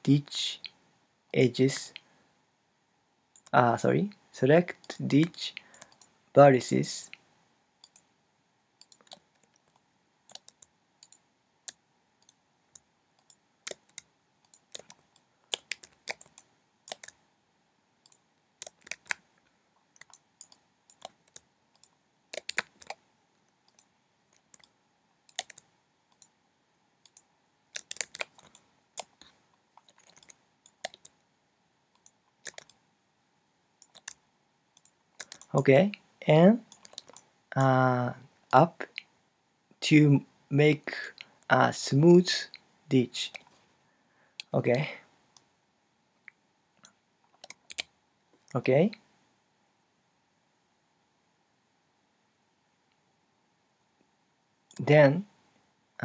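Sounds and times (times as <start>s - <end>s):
mouse and keyboard clicks: 8.8s - 17.2s, 18.0s - 19.3s, 19.9s - 23.0s, 23.7s - 26.3s, 27.0s - 31.2s, 32.0s - 32.8s, 33.8s - 34.2s, 34.8s - 36.0s, 36.7s - 37.3s, 46.3s - 47.9s.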